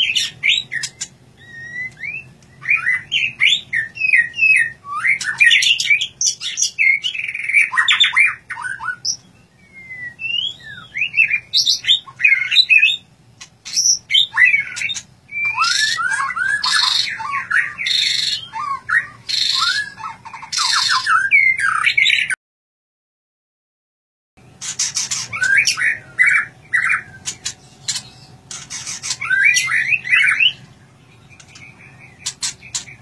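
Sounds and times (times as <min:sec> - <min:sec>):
bird singing whistled phrases: 0:00.0 - 0:13.0, 0:13.7 - 0:22.4, 0:24.7 - 0:33.0
harsh buzzy bird notes: 0:24.4 - 0:33.0.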